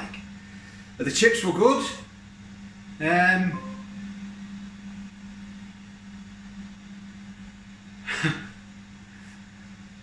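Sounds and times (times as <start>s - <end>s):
low hum of fan: 0.0s - 10.0s.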